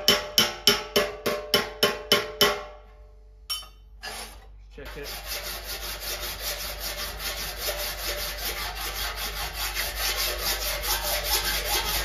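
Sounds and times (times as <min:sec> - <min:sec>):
file rasping across metal: 0:04.0 - 0:12.0.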